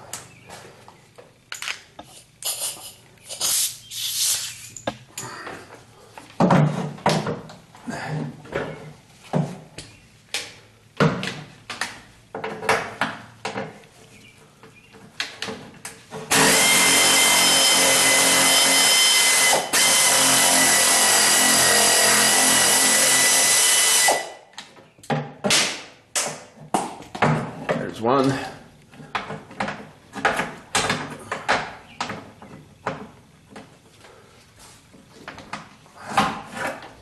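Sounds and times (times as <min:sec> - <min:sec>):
air ratchet hissing and whining: 0:02.0 - 0:04.9, 0:16.3 - 0:24.3.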